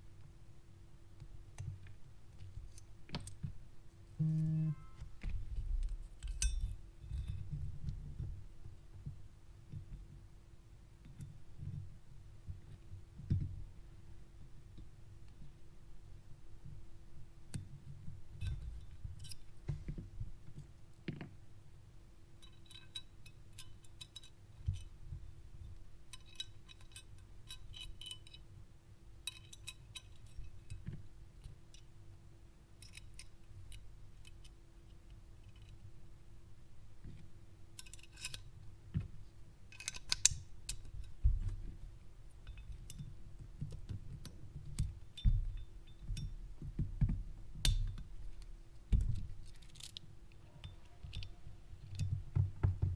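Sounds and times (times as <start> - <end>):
faint steady hum: 0.0 - 52.9
pistol parts clicking and clinking: 22.4 - 24.9, 26.1 - 28.5, 29.2 - 30.9, 32.8 - 34.6, 37.8 - 38.5, 39.7 - 41.2.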